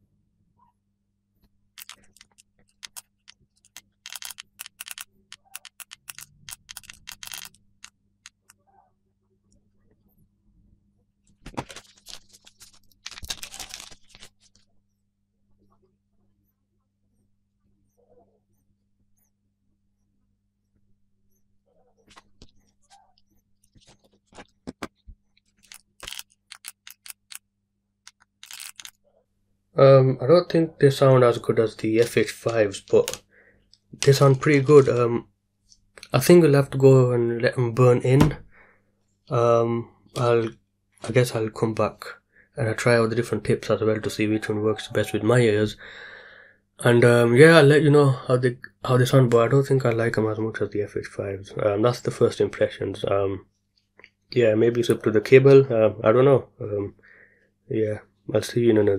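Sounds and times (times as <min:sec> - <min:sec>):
fingers clicking hardware buttons: 0:01.8 - 0:07.6.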